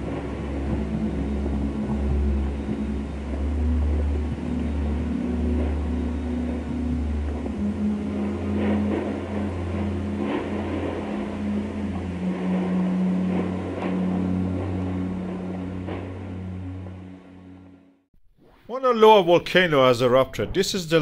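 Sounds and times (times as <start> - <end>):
low droning music: 0.0 - 18.1.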